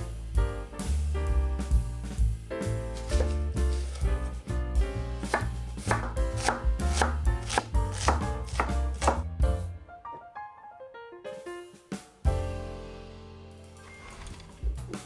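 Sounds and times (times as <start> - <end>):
background music: 0.0 - 15.0
knife chopping on wooden board: 3.0 - 4.4, 5.2 - 9.3.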